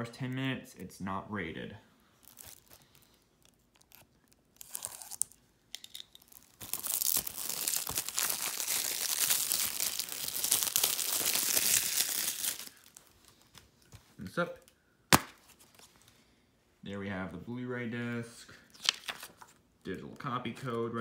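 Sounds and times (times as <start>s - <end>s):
plastic film crinkling and tearing: 2.2s - 13.6s, 18.8s - 19.5s
utility knife slitting plastic wrap: 3.8s - 13.0s.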